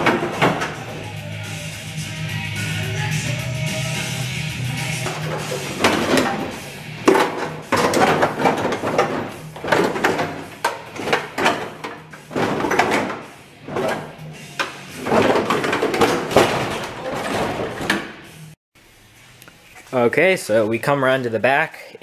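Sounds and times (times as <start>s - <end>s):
sheet metal clanking and scraping: 0.0s - 1.3s, 4.8s - 18.6s.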